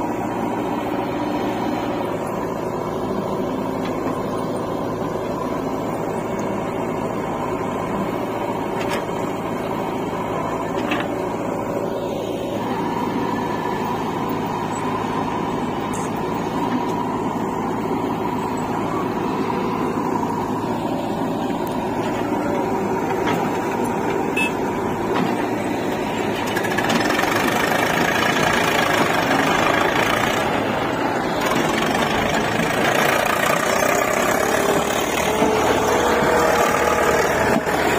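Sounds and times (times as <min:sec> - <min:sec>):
diesel engines running: 0:00.0 - 0:37.9.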